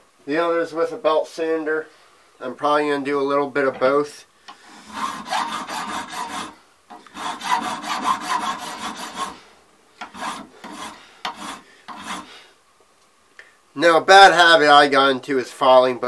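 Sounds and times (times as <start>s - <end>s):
file rasping on brass: 4.6s - 9.4s, 10.0s - 12.4s.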